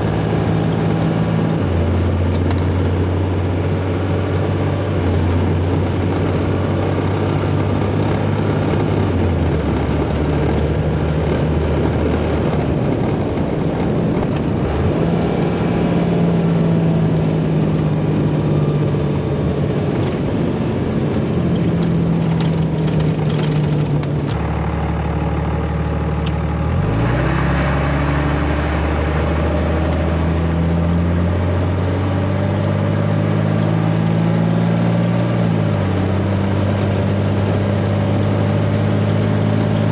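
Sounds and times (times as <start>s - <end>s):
diesel engine drone: 0.0s - 39.9s
tyres rumbling on gravel: 5.1s - 31.7s.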